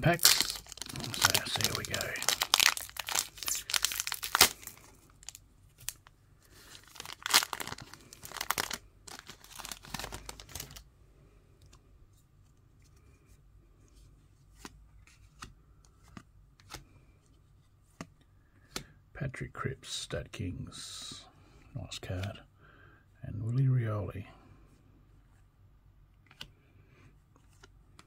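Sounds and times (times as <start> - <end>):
foil wrapper crinkling and tearing: 0.0 - 10.8
faint clicks of cards handled: 11.6 - 19.0, 26.2 - 28.0.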